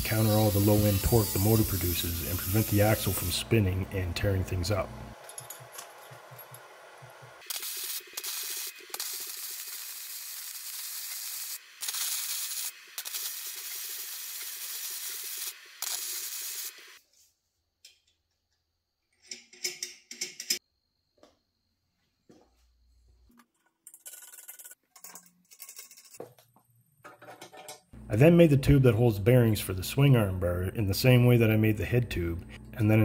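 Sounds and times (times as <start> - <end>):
power tool hissing on steel: 0.0 - 3.4.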